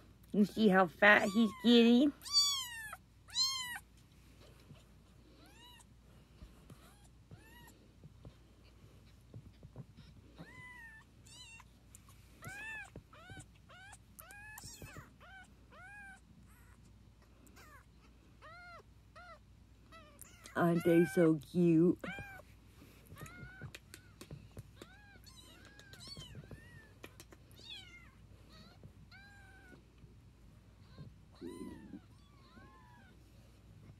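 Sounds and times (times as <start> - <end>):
kittens mewing: 23.1 - 29.8, 30.8 - 33.2.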